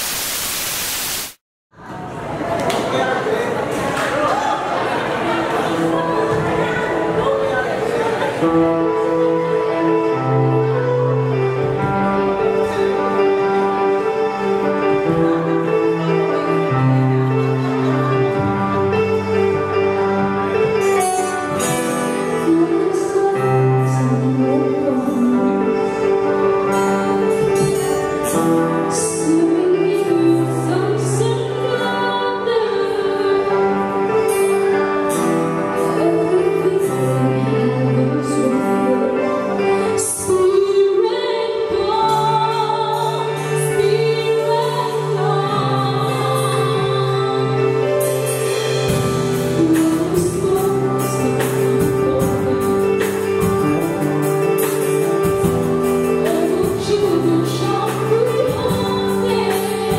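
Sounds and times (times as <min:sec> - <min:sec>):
keyboard: 0:01.9 - 0:59.9
woman singing lead: 0:05.6 - 0:59.9
drums and cymbals: 0:48.0 - 0:56.8.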